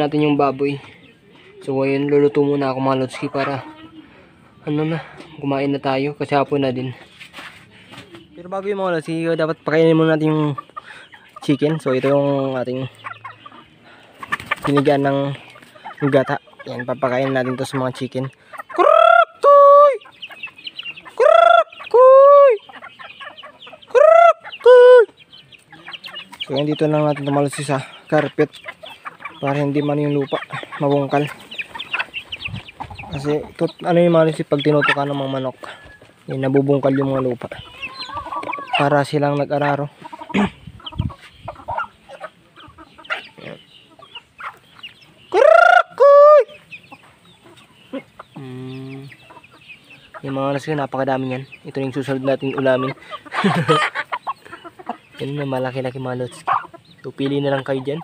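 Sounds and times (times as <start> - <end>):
chickens calling loudly: 0.0 - 58.0
chickens clucking quietly: 0.0 - 58.0
loud chicken call: 18.6 - 20.3, 21.0 - 26.4, 36.9 - 38.9, 45.3 - 46.7.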